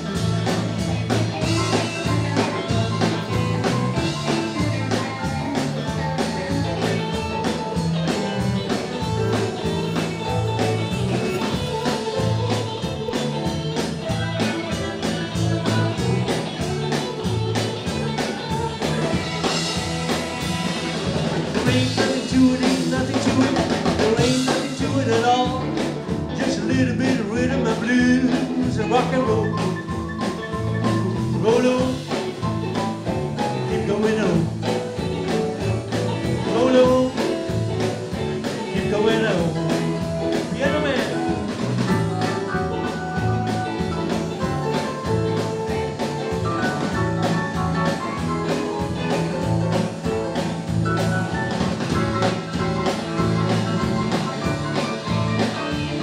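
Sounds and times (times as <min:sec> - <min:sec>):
rock and roll band playing: 0:00.0 - 0:56.0
person singing: 0:00.1 - 0:19.6, 0:21.5 - 0:29.8, 0:30.6 - 0:32.8, 0:33.4 - 0:35.1, 0:35.9 - 0:41.5.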